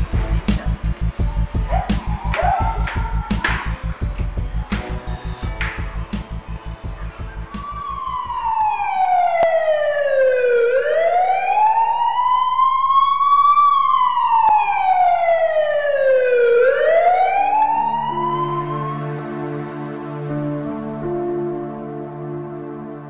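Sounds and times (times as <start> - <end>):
ambulance siren wailing: 0.0 - 5.8, 6.4 - 19.4
pulsing music beat: 0.0 - 9.2.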